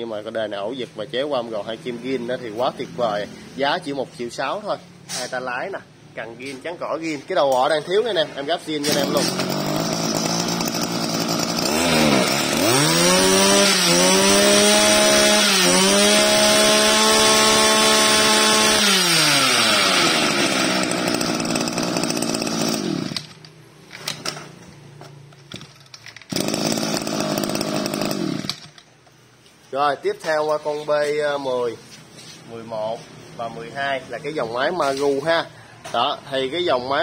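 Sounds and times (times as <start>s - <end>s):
two-stroke engine revving: 8.8s - 23.4s, 26.3s - 28.7s.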